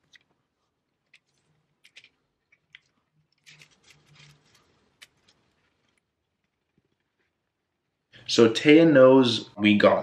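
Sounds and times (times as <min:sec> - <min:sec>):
crackling of adhesive light strip: 0:01.0 - 0:07.3.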